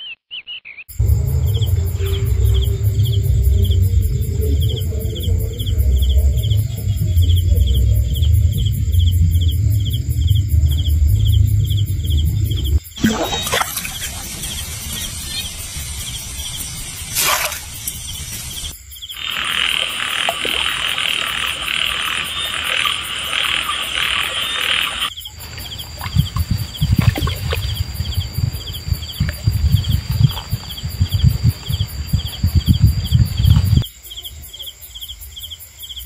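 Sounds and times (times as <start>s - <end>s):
frogs calling in chorus: 0.0s - 34.8s
insects chirping: 0.5s - 36.0s
crickets chirping: 0.9s - 36.0s
loud low thuds: 25.5s - 33.8s.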